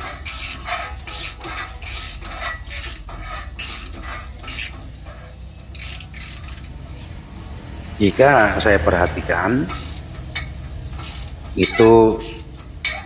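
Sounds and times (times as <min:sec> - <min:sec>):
socket ratchet rasping: 0:00.0 - 0:06.8, 0:09.7 - 0:13.0.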